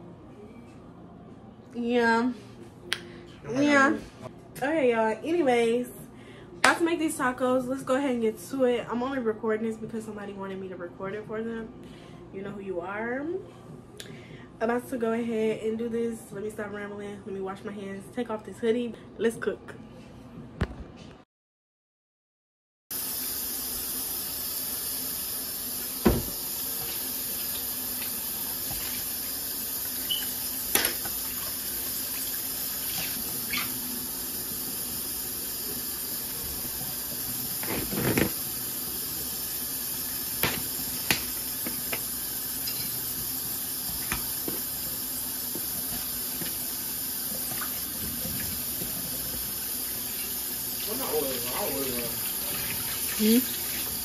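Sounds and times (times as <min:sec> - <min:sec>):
tap water running into sink: 0:23.0 - 0:54.0.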